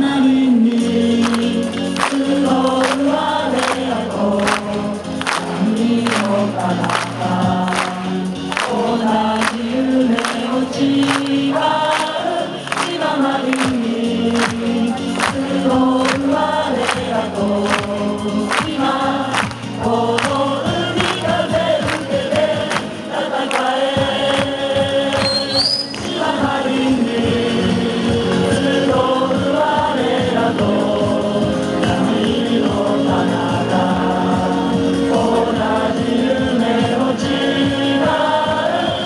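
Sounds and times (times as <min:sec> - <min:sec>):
crowd singing cheering song: 0:00.0 - 0:39.0
steady drum beat: 0:23.8 - 0:39.0.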